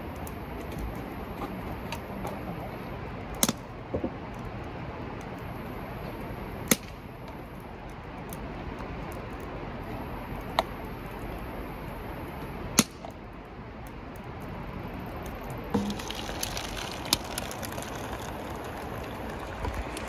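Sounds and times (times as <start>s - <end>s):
fire popping: 0.0s - 20.0s
wood fire crackling: 0.0s - 20.0s
fire hiss: 15.8s - 20.0s.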